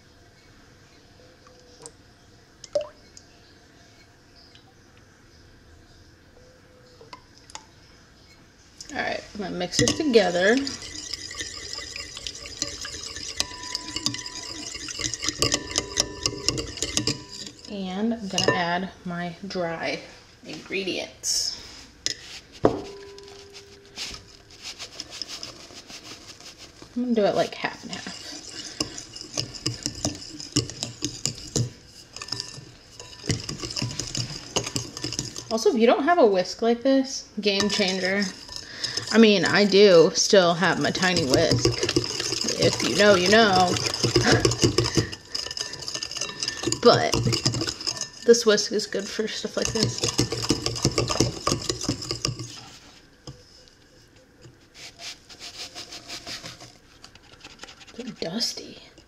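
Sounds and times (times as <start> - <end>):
soft scraping stir: 8.2 - 18.9, 19.8 - 35.9, 37.4 - 59.0
whisk clinking against bowl: 8.8 - 18.8, 22.0 - 35.8, 37.4 - 53.7.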